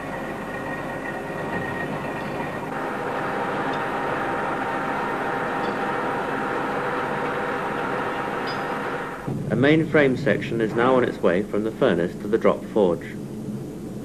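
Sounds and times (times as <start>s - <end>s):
machine tool boring metal: 0.0s - 9.3s
faint steady hum: 0.0s - 14.0s.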